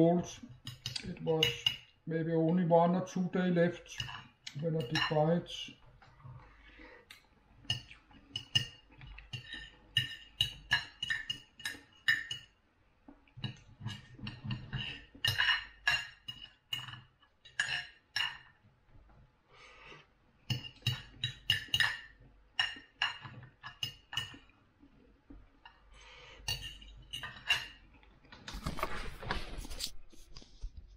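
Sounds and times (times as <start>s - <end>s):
cutlery clinking on a plate: 0.6s - 1.9s, 3.9s - 5.2s, 7.7s - 12.6s, 13.4s - 18.6s, 20.5s - 24.5s, 26.4s - 27.9s.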